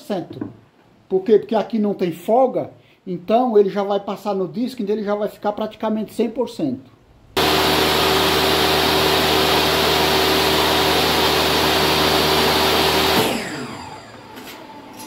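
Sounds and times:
table saw cutting wood: 7.4 - 15.0.

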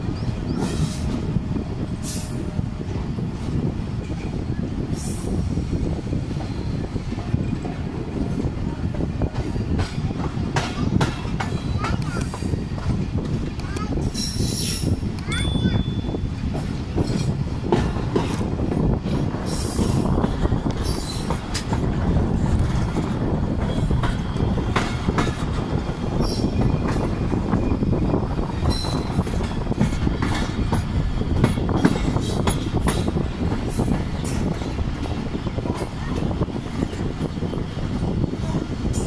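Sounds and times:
train clicks and clanks: 0.0 - 39.0
train wheels rumbling on rails: 0.0 - 39.0
high wheel squeals: 28.6 - 29.2.

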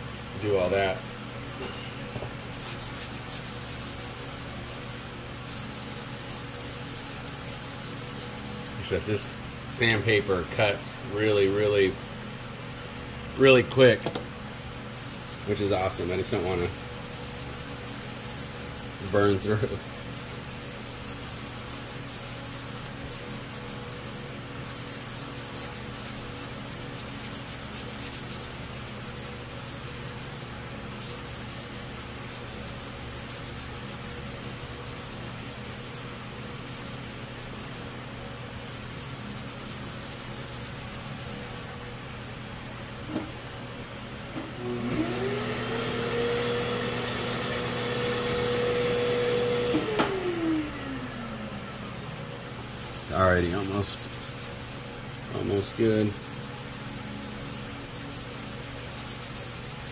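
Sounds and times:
sandpaper rubbing on plastic: 2.6 - 8.8, 15.0 - 38.0, 38.6 - 41.7, 52.7 - 59.9
small electric motor whine: 44.6 - 51.1, 55.7 - 59.9.

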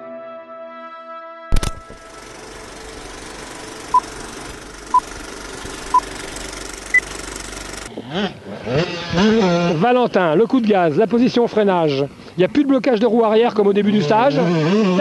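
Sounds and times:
film projector whirring clatter: 1.6 - 7.9
dirt bike engine revving: 1.8 - 10.2, 13.9 - 15.0.

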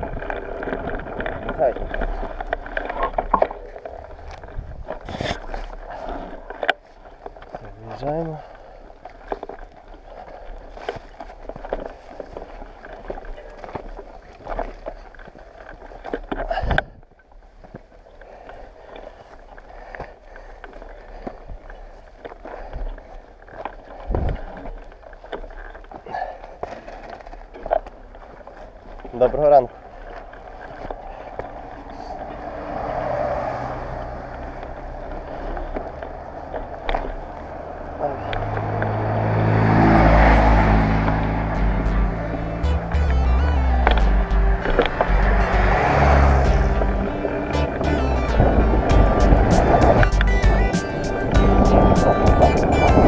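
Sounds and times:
leaves and branches rustling: 0.0 - 41.5
bicycles and bags rattling: 0.0 - 43.0, 44.0 - 53.0.

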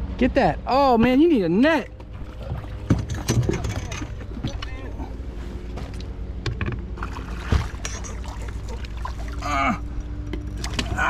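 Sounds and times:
handling knocks and clicks: 2.8 - 5.0, 5.7 - 7.0.

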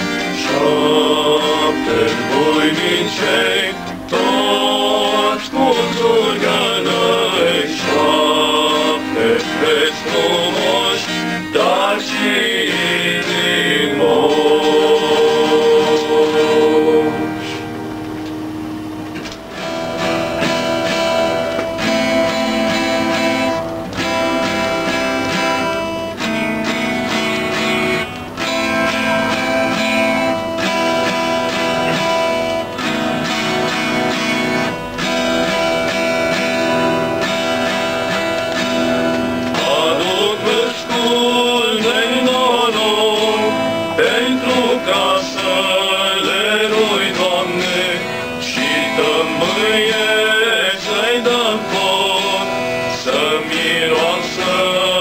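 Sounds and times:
male voices singing: 0.0 - 17.6, 39.5 - 55.0
acoustic guitar strumming: 0.0 - 55.0.

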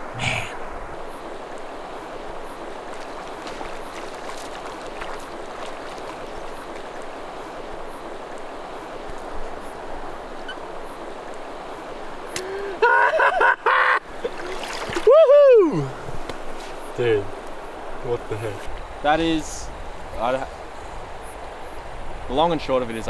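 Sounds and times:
river water rushing: 0.0 - 12.9, 14.0 - 18.2
man whooping: 12.6 - 14.0, 15.0 - 16.0.

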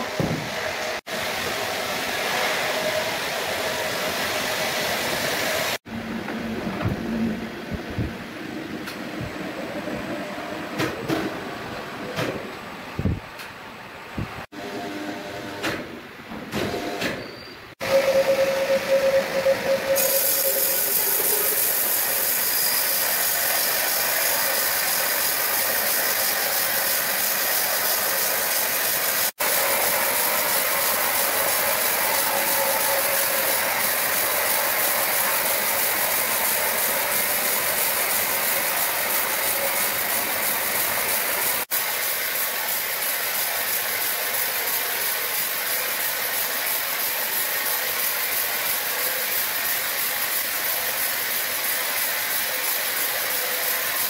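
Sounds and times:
sawmill machinery hissing: 0.0 - 5.9, 17.7 - 54.0.

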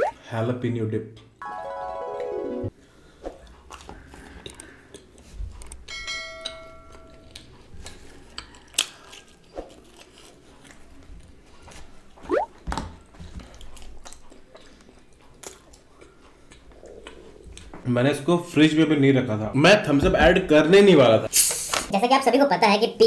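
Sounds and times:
wet chewing: 3.4 - 5.8, 13.4 - 17.8.

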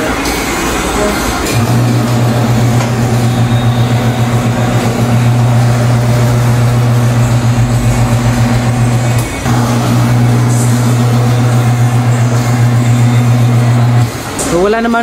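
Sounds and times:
tire-changer motor humming: 0.9 - 14.5.

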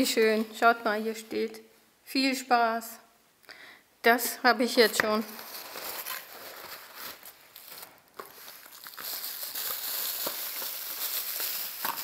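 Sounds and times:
paper and bubble wrap crinkling: 4.8 - 12.0.

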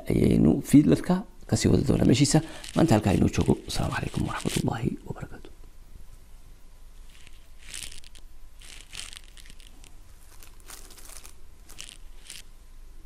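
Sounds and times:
steady low hum: 0.0 - 13.0
soft rustles: 1.6 - 5.0, 7.0 - 12.5.

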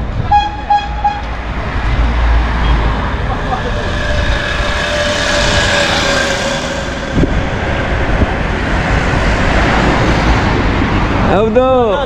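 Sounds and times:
street traffic: 0.0 - 12.0
passing motor vehicle drone: 0.4 - 11.3
wind on microphone: 1.4 - 11.3.

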